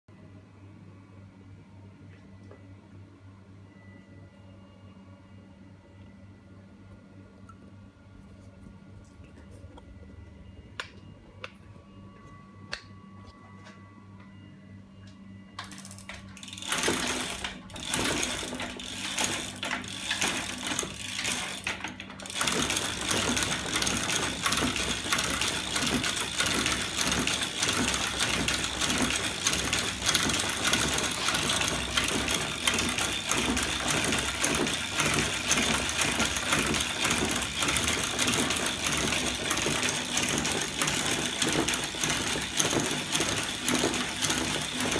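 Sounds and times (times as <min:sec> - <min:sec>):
rapid mechanical clatter: 0:15.6 - 0:44.9.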